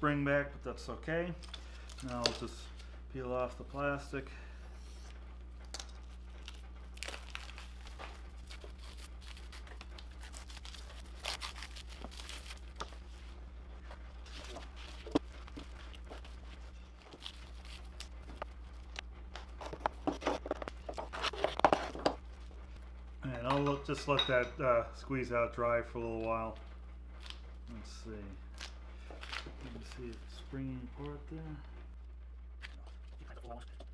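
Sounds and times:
plastic wrap crinkling and tearing: 0:05.7 - 0:13.4, 0:14.2 - 0:22.6, 0:28.5 - 0:30.4.

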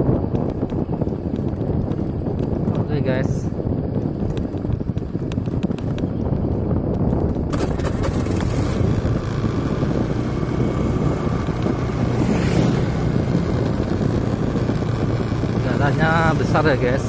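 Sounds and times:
wind buffeting microphone: 0:00.0 - 0:17.0
vehicle running: 0:04.0 - 0:17.0
motorcycle passing: 0:07.5 - 0:17.0.

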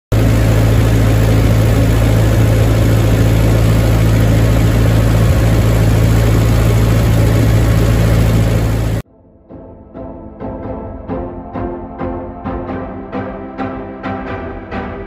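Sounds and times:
tractor engine running: 0:00.1 - 0:09.0.

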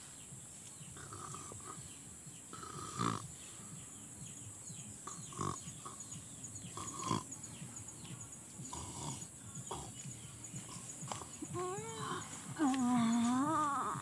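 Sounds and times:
soft snuffling: 0:02.5 - 0:03.7, 0:08.6 - 0:14.0.

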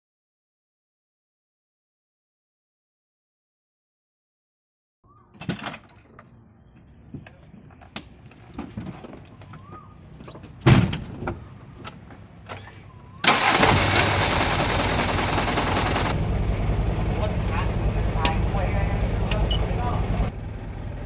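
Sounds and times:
loud thump: 0:10.6 - 0:11.3
truck engine running: 0:11.4 - 0:21.0.

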